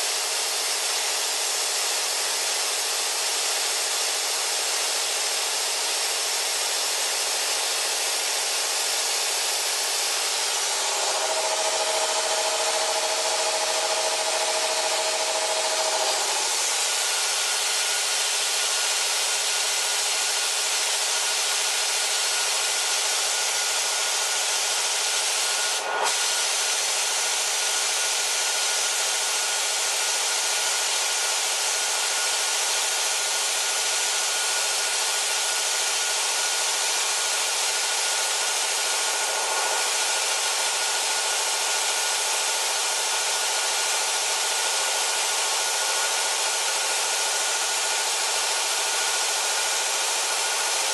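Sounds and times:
piston compressor running: 0:00.0 - 0:50.9.

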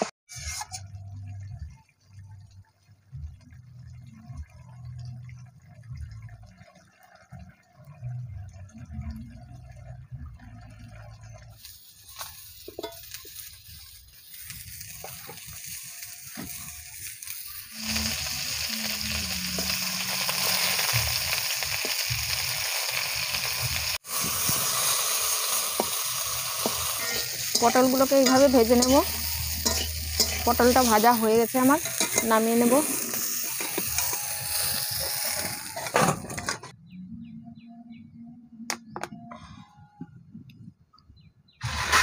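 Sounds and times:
food sizzling in hot oil: 0:11.5 - 0:36.4.

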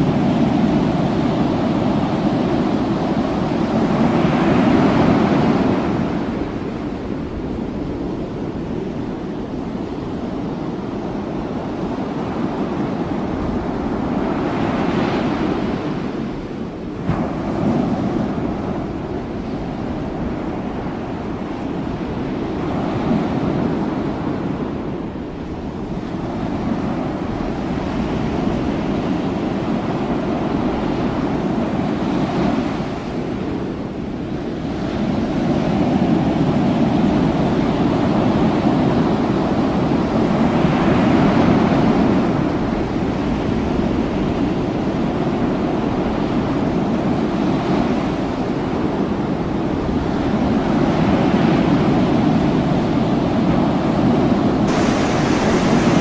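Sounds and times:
wind buffeting microphone: 0:00.0 - 0:56.0
sea surging against door: 0:54.5 - 0:56.0.

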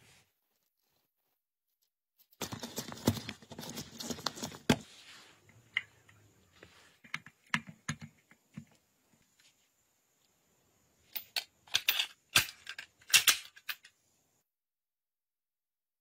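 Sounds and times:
small metal parts clicking: 0:11.1 - 0:14.0.

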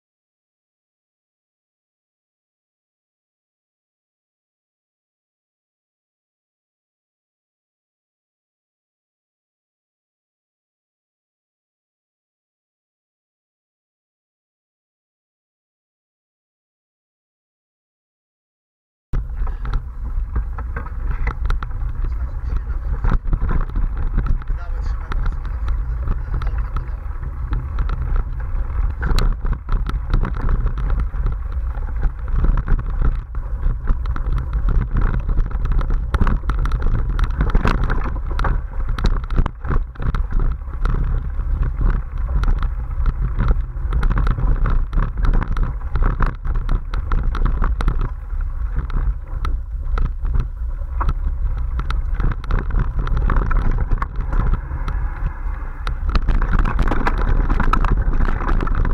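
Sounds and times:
bike rumbling over dirt trail: 0:19.2 - 0:58.9
clicks and rattles of bike: 0:19.2 - 0:58.9.

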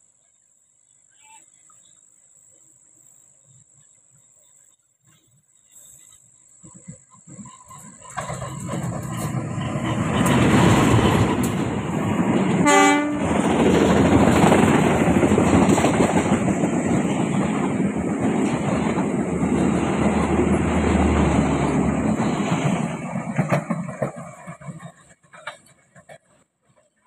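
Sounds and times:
train coaches rumbling on rails: 0:03.1 - 0:27.0
train horn blast: 0:12.6 - 0:13.4.

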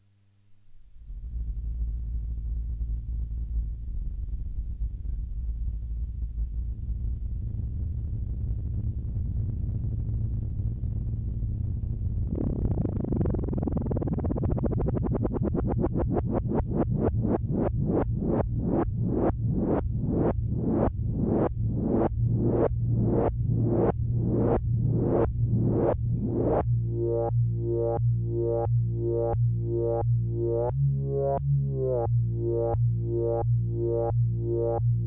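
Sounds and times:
synthesizer low sustained tone: 0:00.8 - 0:35.0
rhythmic synth pulsing: 0:13.8 - 0:35.0.

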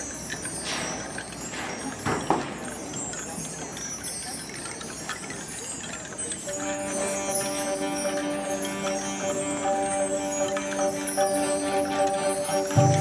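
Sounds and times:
faint light percussion: 0:00.0 - 0:13.0
marching band sustained chord: 0:07.7 - 0:13.0.

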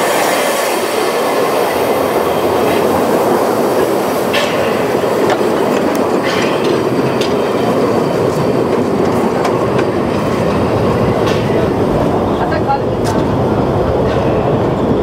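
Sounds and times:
train wheels rumbling on rail: 0:00.0 - 0:15.0
wheels clacking over rail joints: 0:01.5 - 0:15.0.

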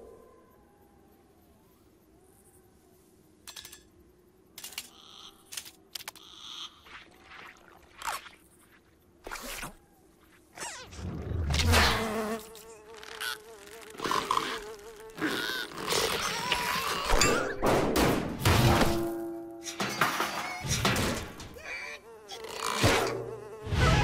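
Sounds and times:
cartoon fly buzzing: 0:10.6 - 0:17.2, 0:21.6 - 0:24.0.

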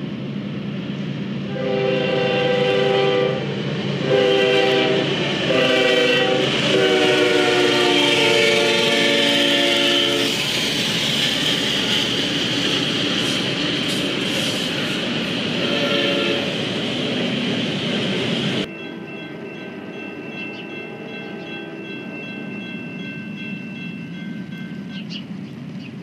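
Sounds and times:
train cars rumbling past: 0:00.0 - 0:26.0
locomotive air horn blasts: 0:01.5 - 0:10.4, 0:15.6 - 0:16.6.

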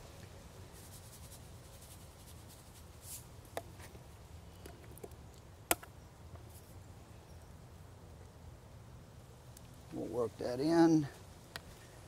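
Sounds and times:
shaker rattle: 0:00.6 - 0:03.8.

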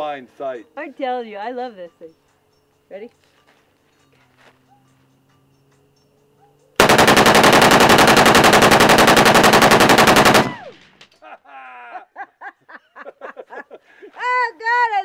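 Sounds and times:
automatic gunfire burst: 0:06.8 - 0:10.7
gunfire echo: 0:06.8 - 0:10.8.

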